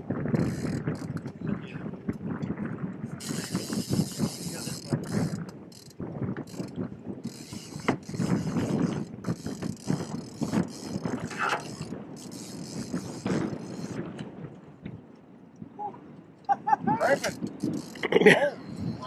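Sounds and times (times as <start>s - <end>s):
fishing reel ratcheting: 0.3s - 1.4s, 3.2s - 14.0s, 17.0s - 18.1s.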